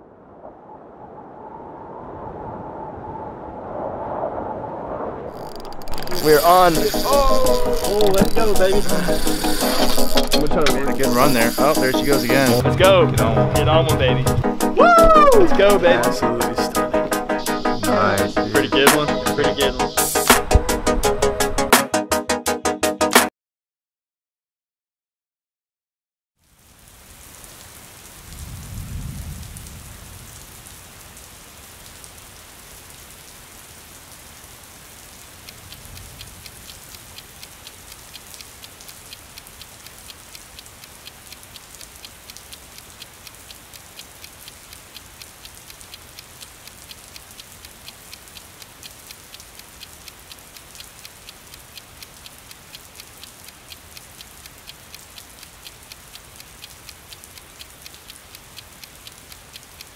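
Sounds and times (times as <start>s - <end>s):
rain falling on pavement: 5.3s - 16.8s, 26.4s - 59.9s.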